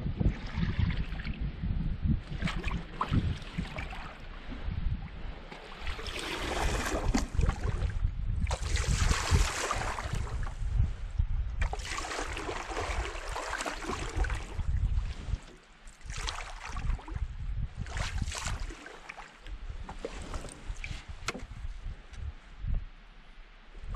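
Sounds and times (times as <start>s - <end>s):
paddle swishing through water: 2.2s - 10.9s, 11.6s - 17.2s, 17.8s - 21.9s.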